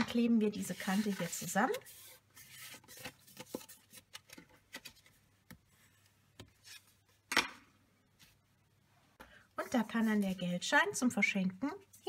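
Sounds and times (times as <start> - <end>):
card stock rustling and rubbing: 0.6 - 7.0.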